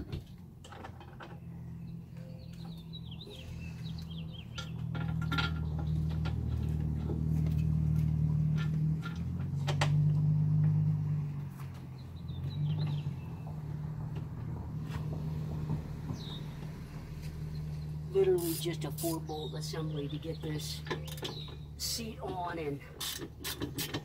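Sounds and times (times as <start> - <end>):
bird chirping: 1.3 - 6.9, 11.9 - 14.4, 16.0 - 22.4
metal clicks and knocks: 4.4 - 10.8.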